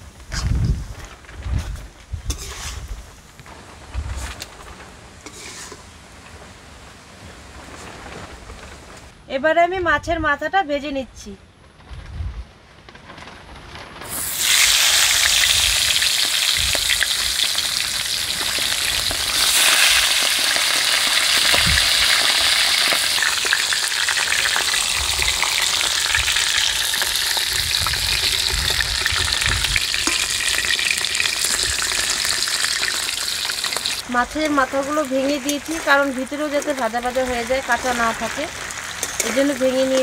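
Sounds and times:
metal spatula scraping pan: 2.3 - 2.9, 5.2 - 5.9, 39.0 - 40.0
fish sizzling in hot oil: 5.2 - 6.0, 14.0 - 40.0.

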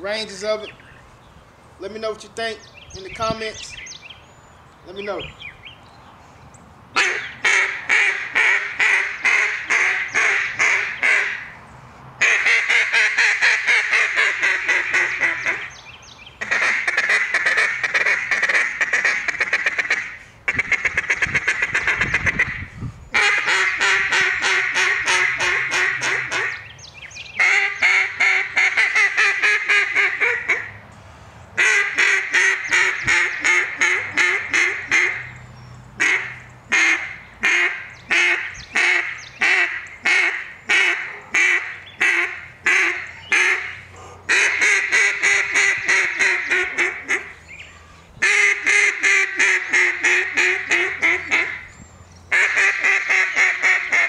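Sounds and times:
duck call quacking: 7.0 - 11.5, 12.2 - 15.7, 16.4 - 22.6, 23.2 - 26.6, 27.4 - 30.7, 31.6 - 35.2, 36.0 - 47.4, 48.2 - 51.6, 52.3 - 54.0.

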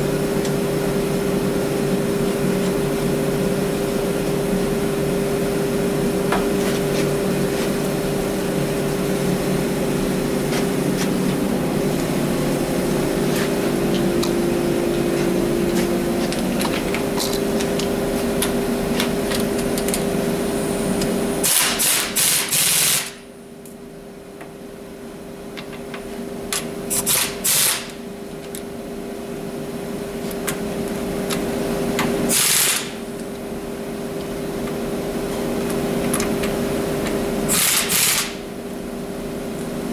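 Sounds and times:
steady machine hum: 0.0 - 39.9
impact wrench hammering: 21.4 - 23.2, 37.5 - 38.4.

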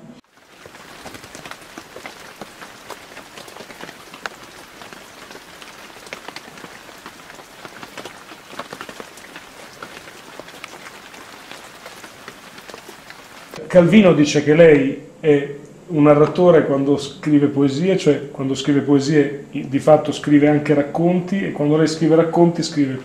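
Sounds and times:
heavy rain on hard surfaces: 0.2 - 13.6.

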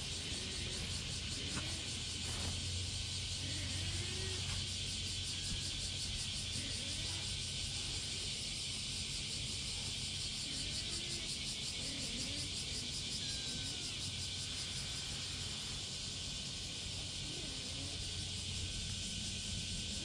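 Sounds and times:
constant high hiss: 0.0 - 20.0.

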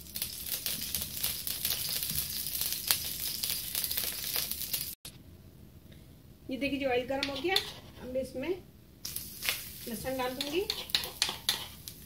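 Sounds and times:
hot oil crackling and spitting: 0.0 - 5.1, 9.0 - 12.0.

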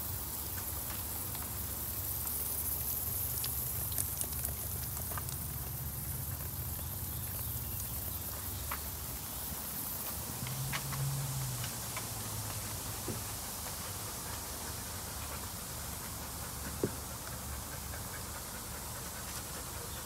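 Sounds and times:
water mist hissing: 0.0 - 18.7
small water drips: 0.4 - 9.1.

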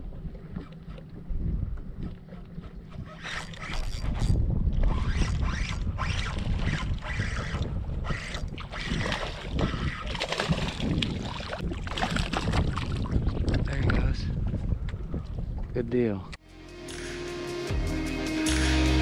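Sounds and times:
water slapping around boat: 0.0 - 14.1
wind buffeting microphone: 0.0 - 16.4
water splashing: 4.8 - 13.6.

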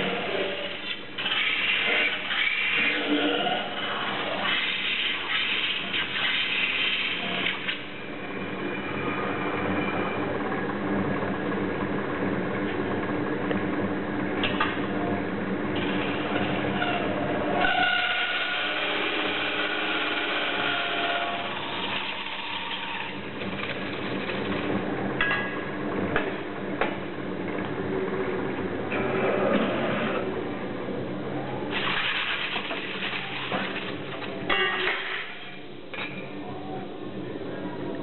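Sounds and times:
whining metal spinning tool: 0.0 - 10.2, 16.2 - 23.3
lathe running: 17.4 - 23.6.

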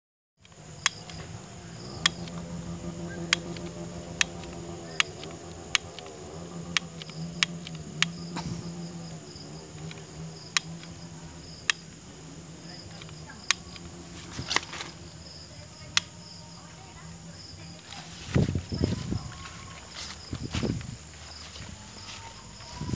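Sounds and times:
lighter igniter clicking: 0.4 - 1.2, 2.0 - 2.5, 3.2 - 8.2
crickets chirping: 0.4 - 22.9
low steady hum: 0.4 - 22.9.

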